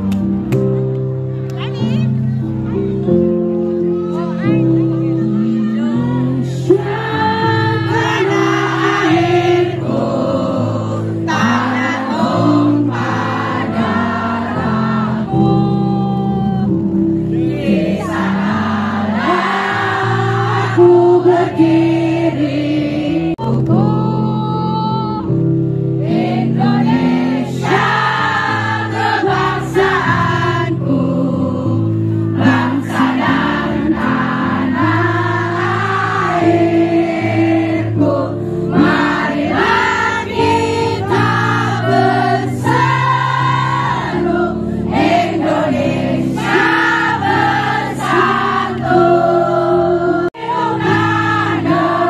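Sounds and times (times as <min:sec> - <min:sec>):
crowd singing along: 0:02.8 - 0:52.0
person singing: 0:04.1 - 0:10.0.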